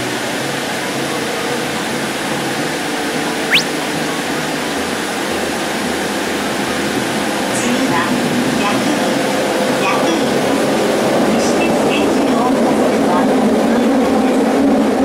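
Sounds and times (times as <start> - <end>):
train running through tunnel: 4.8 - 15.0.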